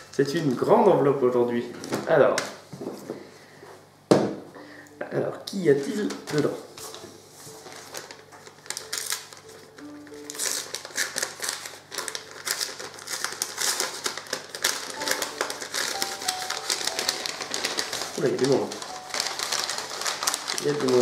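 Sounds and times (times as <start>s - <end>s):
faint background music: 0.0s - 21.0s
paper envelope rustling: 5.8s - 21.0s.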